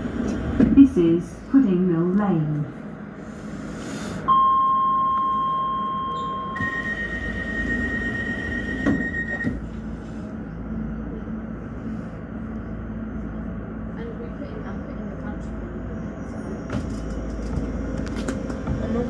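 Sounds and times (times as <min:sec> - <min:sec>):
higher signal tone: 0:04.3 - 0:09.6
train door signal tone: 0:04.3 - 0:09.7.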